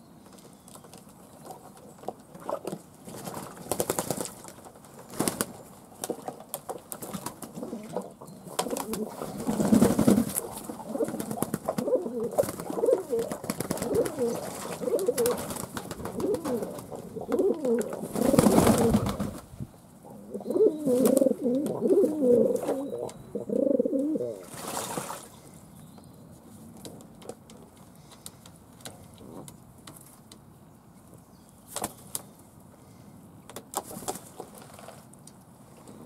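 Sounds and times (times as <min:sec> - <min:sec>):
wings flapping and splashing: 0:02.4 - 0:19.5, 0:20.9 - 0:21.4, 0:24.4 - 0:25.3
pigeons cooing: 0:07.5 - 0:19.2, 0:20.0 - 0:24.4.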